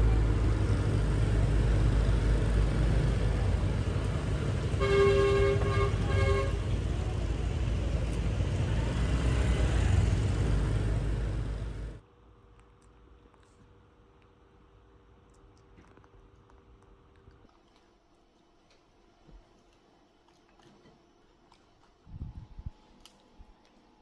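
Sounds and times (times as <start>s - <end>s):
road traffic rumbling: 0.0s - 12.0s
vehicle horn honking: 4.6s - 6.9s.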